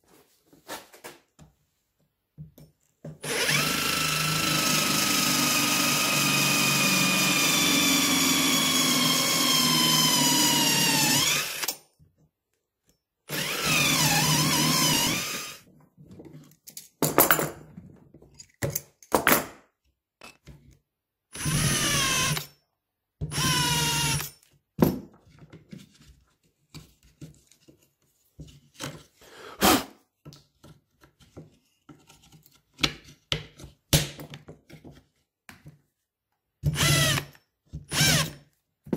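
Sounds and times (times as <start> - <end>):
cordless drill boring into wood: 3.2 - 11.7, 13.3 - 15.6, 21.3 - 22.5, 23.3 - 24.3, 36.6 - 38.4.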